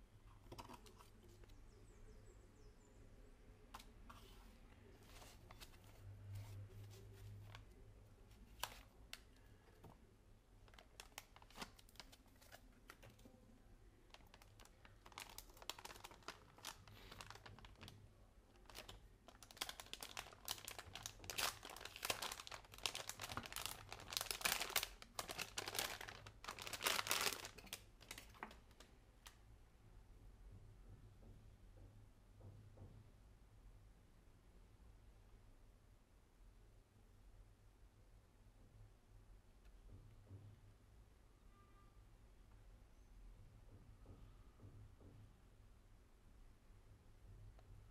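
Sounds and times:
plastic bag crinkling: 10.6 - 13.3, 14.1 - 28.9.

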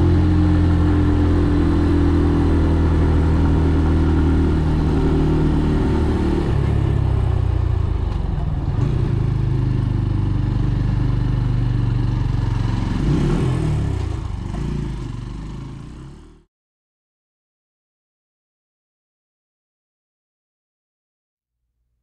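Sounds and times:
motorcycle engine running: 0.0 - 16.4.

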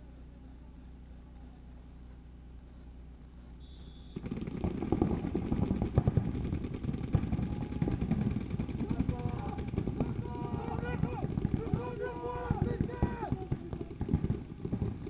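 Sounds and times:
paintball markers firing rapidly: 4.1 - 15.0.

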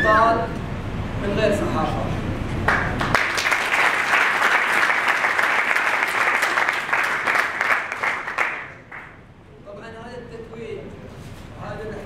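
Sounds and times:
audience applauding: 2.6 - 9.2.

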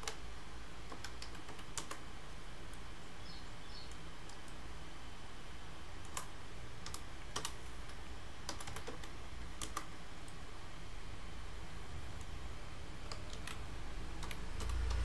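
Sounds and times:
keyboard and mouse clicks: 0.0 - 0.2, 0.9 - 2.0, 6.0 - 10.4, 13.0 - 15.0
low hum: 11.0 - 15.0.

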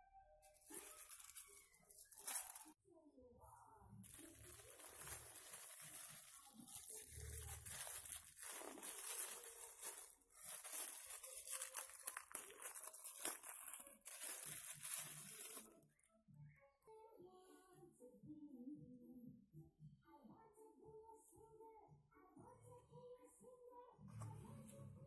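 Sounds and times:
plastic wrapping crinkling and tearing: 0.5 - 2.8, 4.0 - 15.8.

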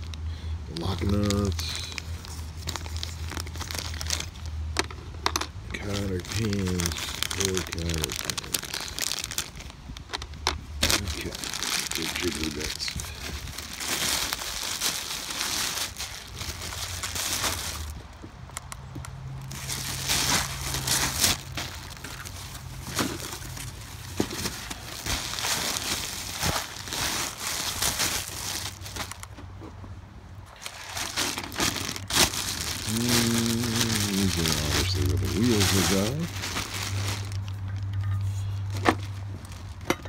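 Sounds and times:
plastic packaging crinkling: 0.0 - 18.0, 19.4 - 29.4, 30.5 - 39.8.

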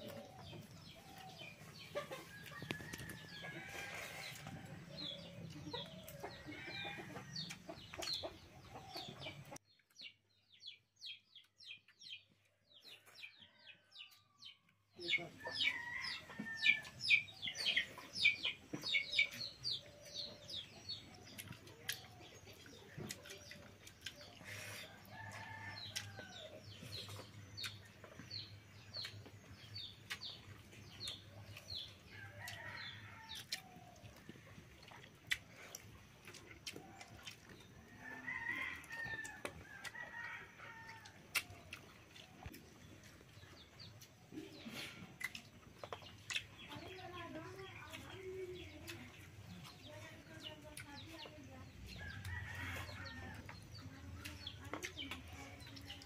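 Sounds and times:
chickens clucking: 0.0 - 10.0.

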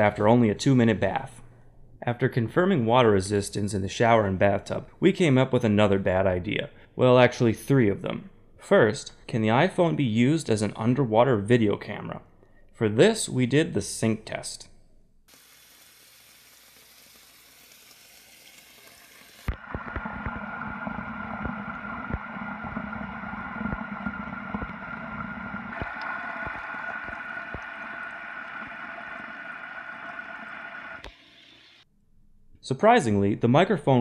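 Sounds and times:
faint hiss: 15.3 - 19.5
underwater gurgling and churning: 19.4 - 31.4
knocks underwater: 19.5 - 28.8.

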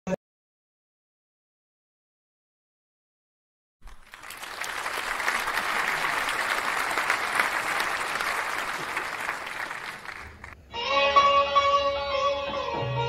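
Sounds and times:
applause: 3.8 - 10.6.

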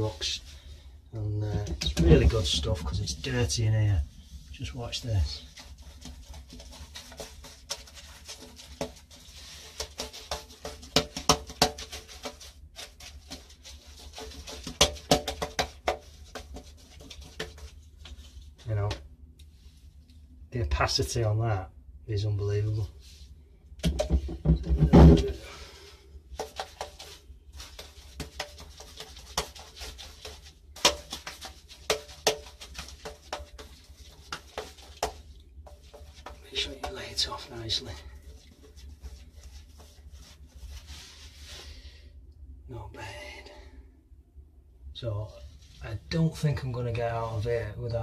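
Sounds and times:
paintbrush slapping on a wall: 1.5 - 20.2, 22.8 - 41.8.

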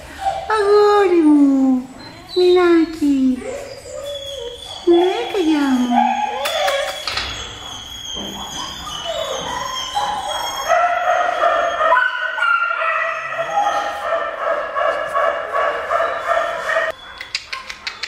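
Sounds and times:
dog whining: 1.6 - 14.2.

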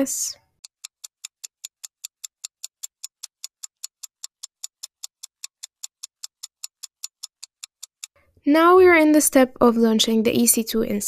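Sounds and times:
sharp even ticks: 0.0 - 8.2.

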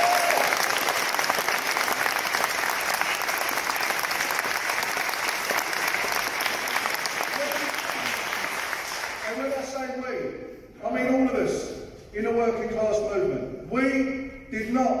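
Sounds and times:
audience clapping: 0.0 - 9.8.

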